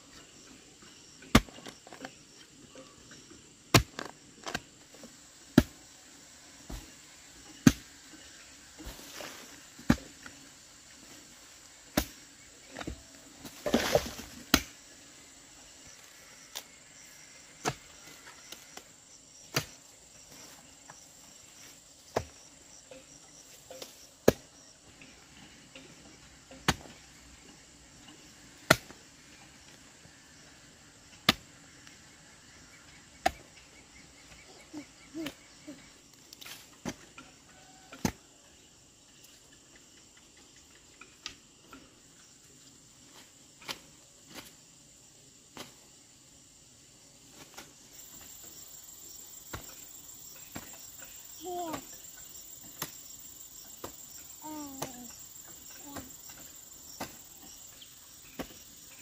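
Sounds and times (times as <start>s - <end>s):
high insect hum: 0.0s - 59.0s
hand tool chopping: 3.7s - 4.6s, 49.5s - 49.8s, 55.7s - 57.4s, 58.3s - 58.6s.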